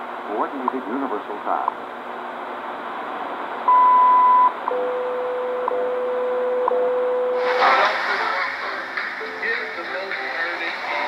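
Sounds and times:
high beep: 3.7 - 7.4
radio hiss: 7.4 - 11.0.

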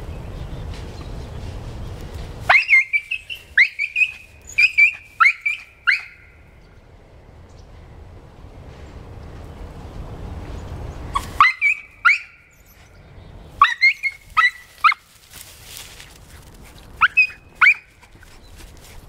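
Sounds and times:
small dog yipping and whining: 2.5 - 6.2, 11.2 - 12.9, 13.6 - 15.0, 17.0 - 18.5.

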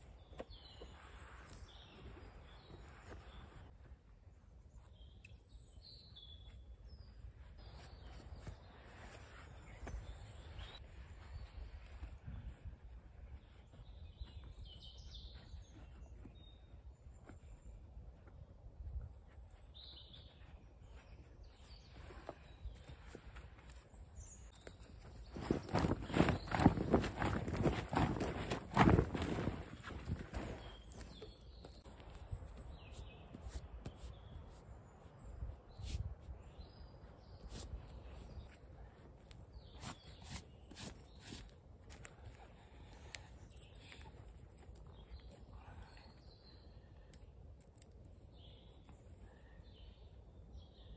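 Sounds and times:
wind noise on microphone: 9.7 - 15.0
canvas sheet rustling: 25.0 - 31.1.

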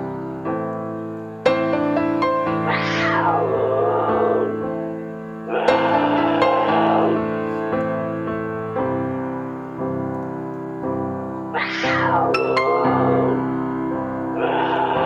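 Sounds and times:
piano music: 0.0 - 15.0
animal calls: 2.6 - 4.6, 5.5 - 7.3, 11.6 - 13.6, 14.3 - 15.0.

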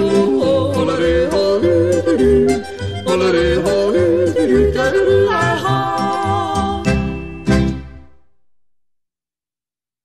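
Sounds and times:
yodeling folk music: 0.0 - 8.0.

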